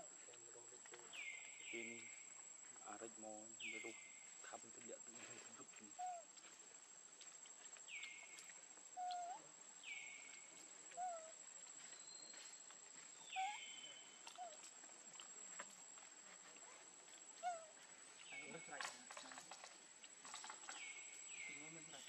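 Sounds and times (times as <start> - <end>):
short animal calls: 17.4 - 17.8.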